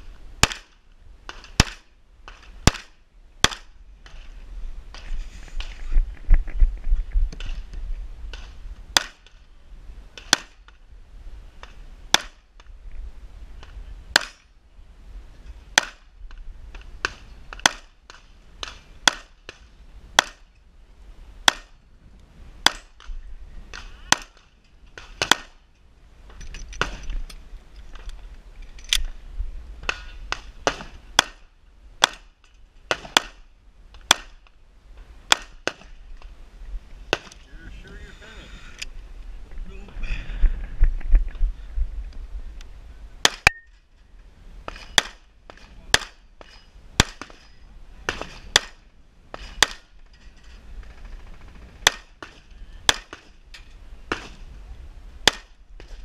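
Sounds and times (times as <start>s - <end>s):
pistol shots: 2.7s - 3.7s.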